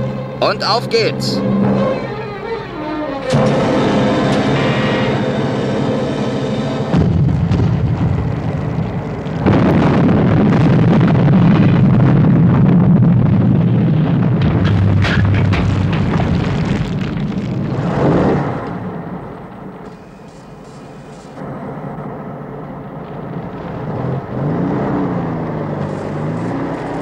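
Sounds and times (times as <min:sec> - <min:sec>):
explosion rumbling roar: 0:03.2 - 0:20.2, 0:21.4 - 0:27.0
explosion blast: 0:03.3 - 0:27.0
scattered cracks: 0:06.9 - 0:27.0.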